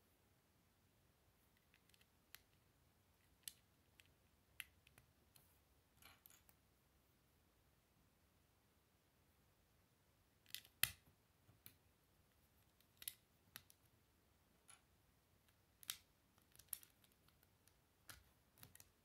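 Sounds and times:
plastic bricks clicking: 15.8 - 19.0.

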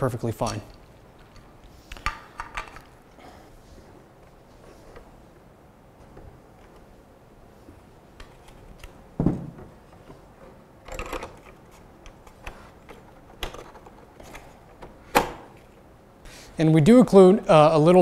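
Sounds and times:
plastic parts knocking and clicking: 10.9 - 15.7.

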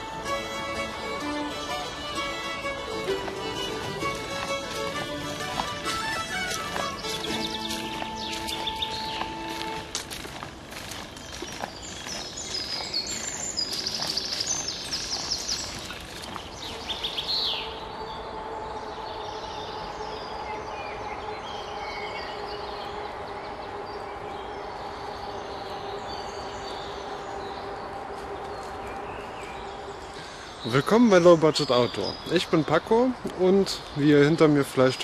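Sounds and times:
footsteps on dry leaves: 0.0 - 17.9, 25.0 - 30.7
birds singing and chirping: 0.0 - 35.0
steady hum: 16.8 - 30.6.

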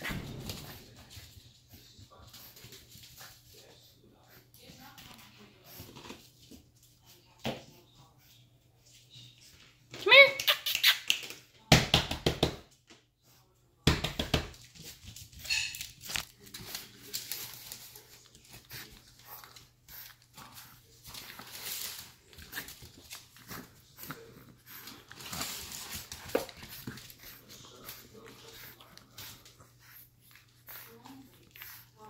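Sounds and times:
puppy noises: 14.8 - 32.0
crinkling and rustling: 14.9 - 24.0, 24.8 - 27.2
scuffling and handling sounds: 16.0 - 32.0.

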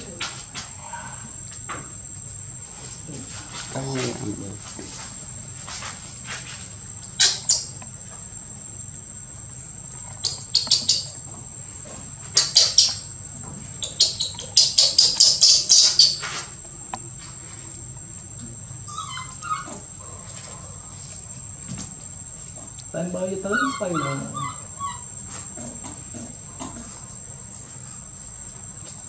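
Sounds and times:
high insect drone: 0.0 - 29.0
baby monkey squeaking: 10.2 - 11.2, 13.8 - 16.3, 18.9 - 19.8, 23.4 - 25.1.

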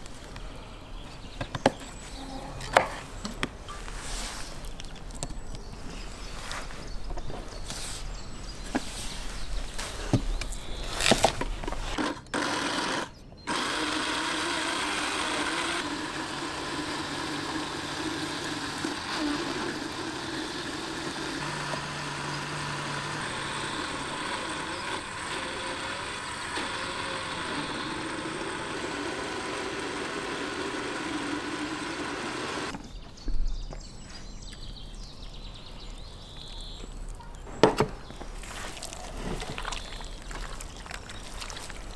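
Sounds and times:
electric blender running: 12.0 - 32.7.

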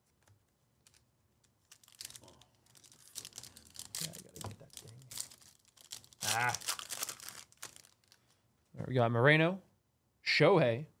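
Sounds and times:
foil wrapper tearing and crinkling: 1.6 - 8.2.

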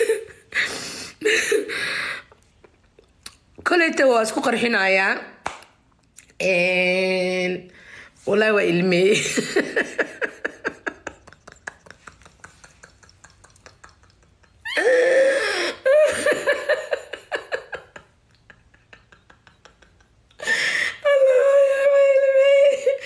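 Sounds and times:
woman laughing breathily: 0.0 - 2.5, 9.3 - 21.3.

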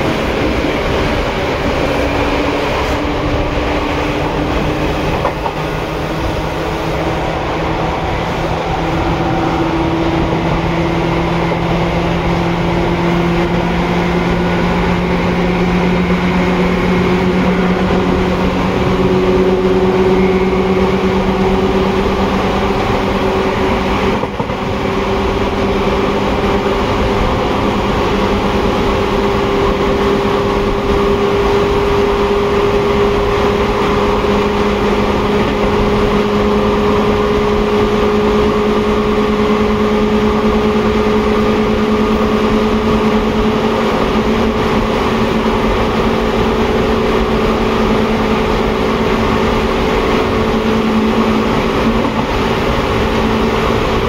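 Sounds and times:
electric train motor whine: 0.0 - 28.9
rail running noise: 0.0 - 54.0.

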